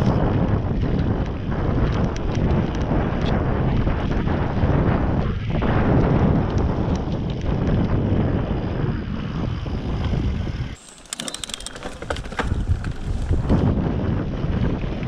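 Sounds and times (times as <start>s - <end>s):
bike tyres rumbling on dirt: 0.0s - 15.0s
wind buffeting microphone: 0.0s - 15.0s
sharp clicks and rattles: 10.8s - 13.7s.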